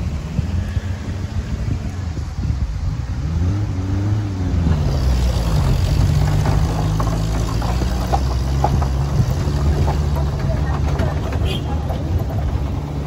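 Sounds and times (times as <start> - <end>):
vehicle engine running: 4.3 - 13.0
light knocks and rattles: 4.7 - 13.0.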